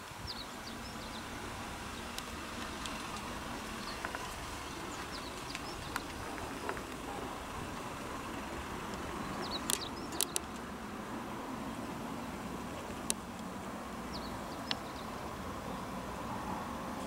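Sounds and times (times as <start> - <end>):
outdoor background rumble: 0.0 - 17.0
high bird chirps: 3.7 - 7.3, 9.2 - 10.6.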